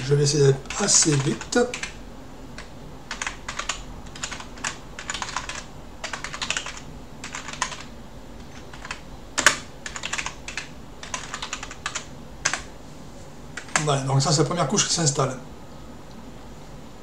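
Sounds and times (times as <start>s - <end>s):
computer keyboard typing: 0.6s - 2.0s, 2.6s - 12.7s, 13.6s - 13.9s.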